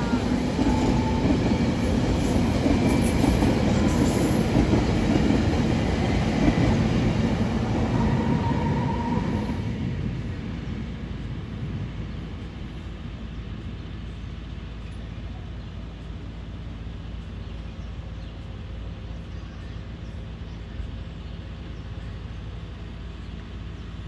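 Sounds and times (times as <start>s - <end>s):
passing train: 0.0s - 24.0s
idling vehicle engines rumble: 11.1s - 24.0s.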